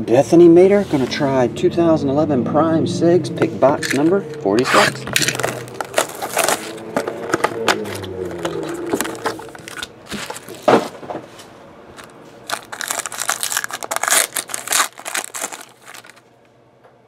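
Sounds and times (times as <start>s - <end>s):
wrapper tearing and crinkling: 3.8s - 10.7s, 12.0s - 16.3s.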